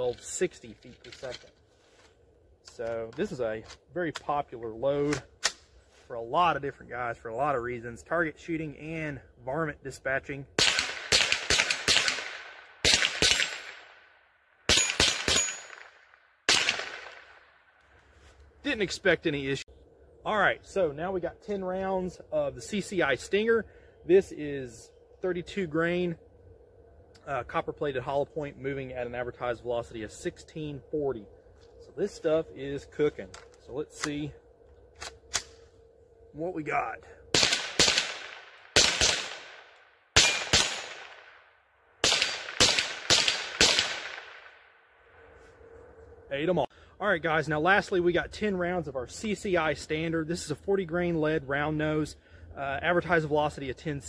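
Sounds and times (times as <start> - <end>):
rifle shots with echo: 10.6 - 14.1, 14.7 - 17.6, 37.3 - 44.7.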